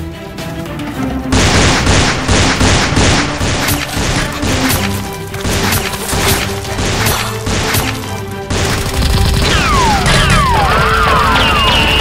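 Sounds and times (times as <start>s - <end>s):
action film music: 0.0s - 12.0s
hard percussive hits: 1.8s - 8.9s.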